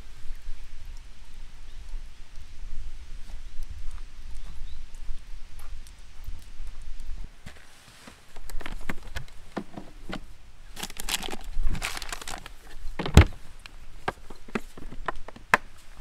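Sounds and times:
paper bag rustling: 10.8 - 13.4.

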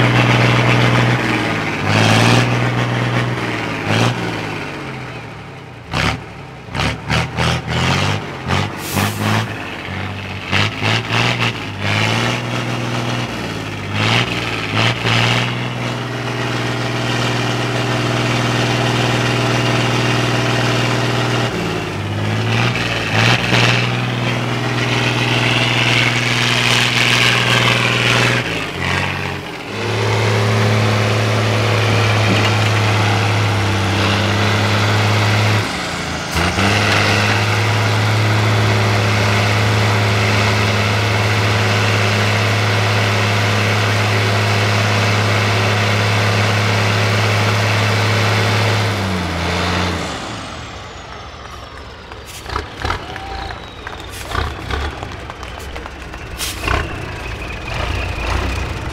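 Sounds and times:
truck engine climbing steadily: 0.0 - 58.9
truck engine revving: 0.0 - 58.9.

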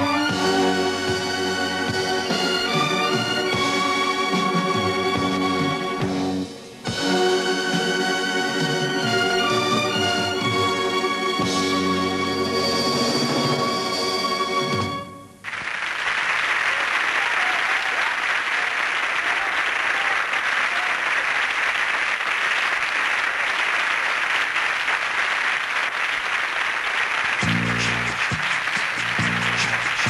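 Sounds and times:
music: 0.0 - 15.4, 27.3 - 30.0
audience applauding: 15.4 - 30.0.

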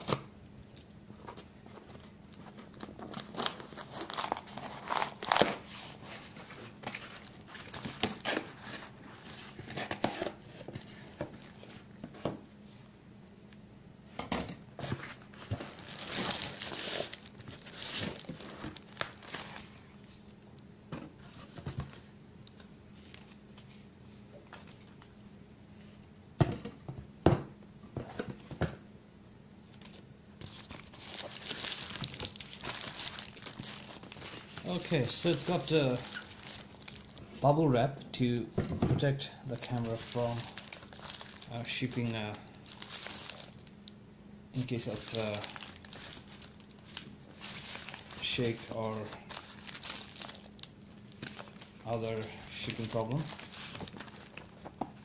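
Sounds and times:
bubble wrap crinkling: 1.4 - 11.9, 14.9 - 20.4, 29.7 - 37.6, 39.5 - 44.0, 44.6 - 55.0
cardboard box rustling: 52.8 - 55.0.

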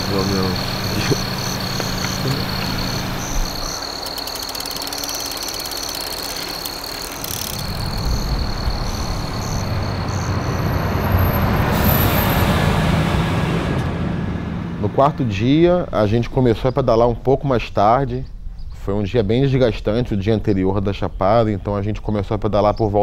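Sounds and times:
bus engine rumble and tyre noise: 0.0 - 3.9, 7.6 - 15.6
night insects chirring: 0.0 - 12.7
low hum: 0.0 - 17.3.

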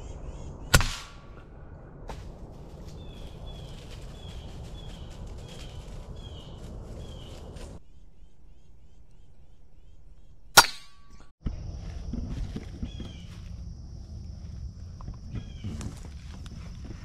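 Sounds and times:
bird chirping: 0.0 - 0.8, 2.9 - 10.5
low rumbling background: 0.0 - 10.5.

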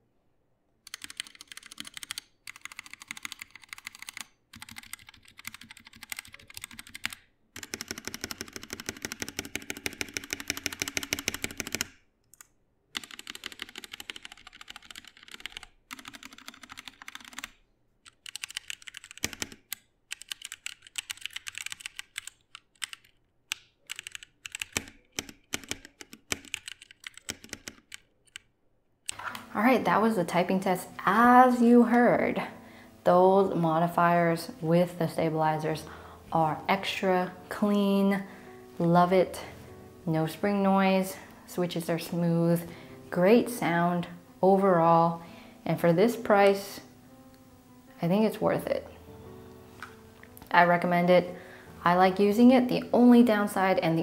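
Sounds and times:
mechanical keyboard clacks: 0.9 - 11.9, 13.0 - 17.5, 18.1 - 28.4.

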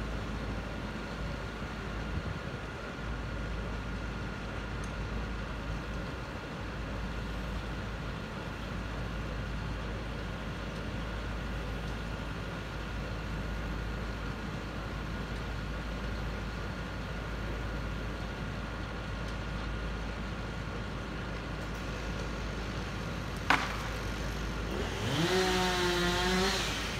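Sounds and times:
diesel engine idling: 0.0 - 26.9.

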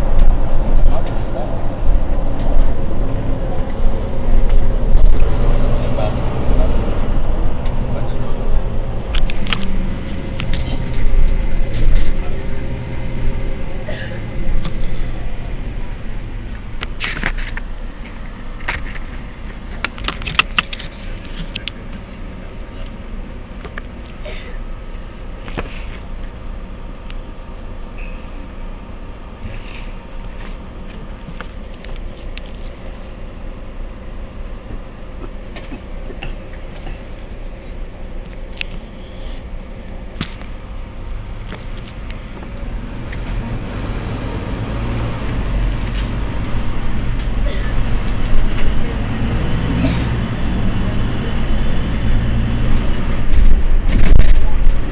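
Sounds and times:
bus diesel engine idling: 0.0 - 20.0, 20.8 - 43.6, 44.4 - 54.9
sharp clicks and rattles: 7.5 - 12.2, 16.5 - 22.1, 30.2 - 32.9, 39.9 - 40.6, 52.7 - 54.9.

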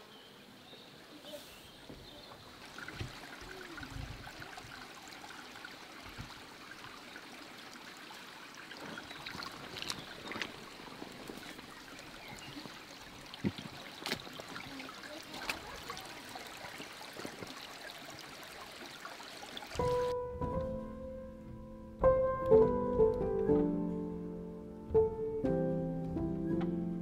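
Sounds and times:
stream trickling over rocks: 0.8 - 20.2
low thumps: 19.8 - 27.0.

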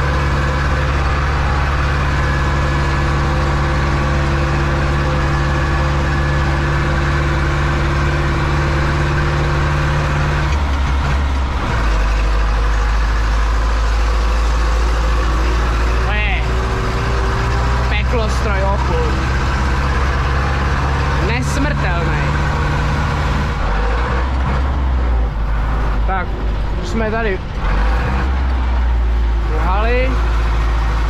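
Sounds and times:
tractor diesel engine running: 0.0 - 31.0.

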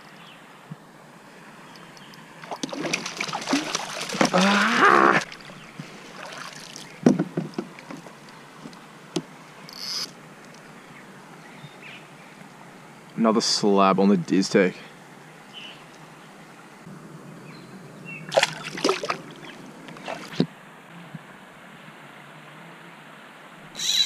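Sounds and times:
fish splashing at the surface: 2.4 - 6.9, 18.3 - 20.4
sharp knocks: 7.0 - 7.7.

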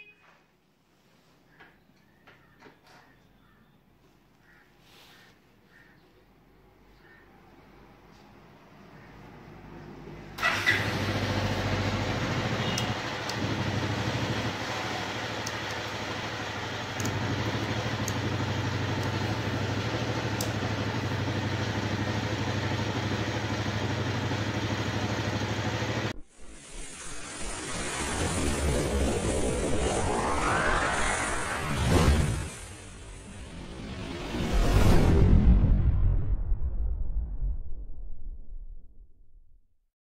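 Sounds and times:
electric starter cranking: 10.4 - 14.0
motorcycle engine idling: 10.4 - 26.1.

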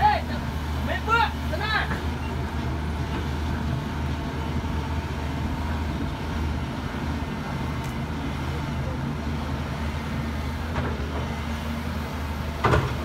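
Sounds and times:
excavator diesel engine running: 0.0 - 13.0.

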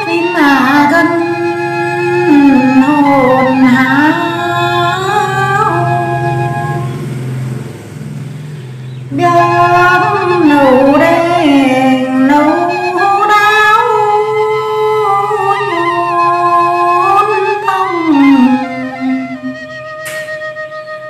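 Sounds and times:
woman singing folk song: 2.3 - 6.7, 9.1 - 19.3.

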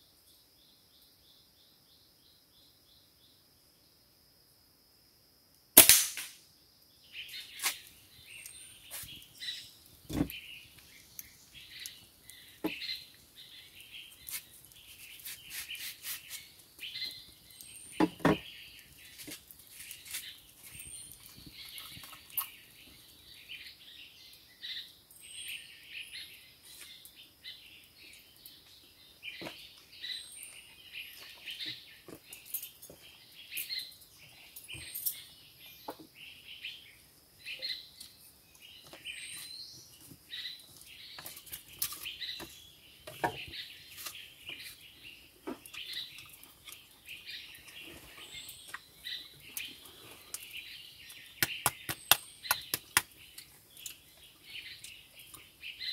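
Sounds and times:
birds chirping: 6.9 - 55.9.

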